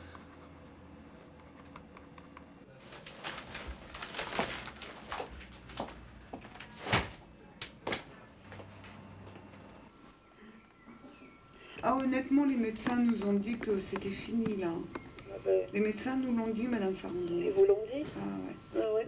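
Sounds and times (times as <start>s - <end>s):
plastic-wrapped paper rustling: 2.8s - 7.2s.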